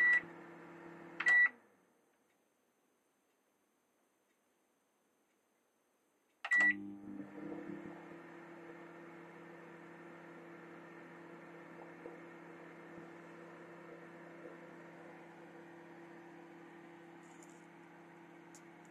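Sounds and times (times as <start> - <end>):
microwave oven humming: 0.0 - 1.4, 6.5 - 18.9.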